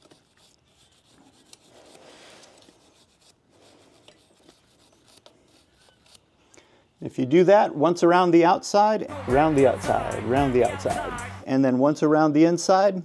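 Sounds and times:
toothbrush scrubbing a chain: 0.0s - 6.2s.

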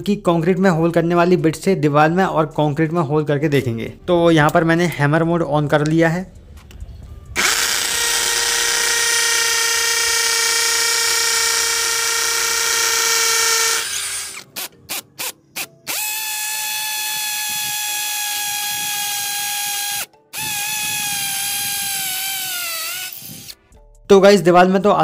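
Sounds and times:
hammer drill boring into wall: 7.4s - 23.6s.

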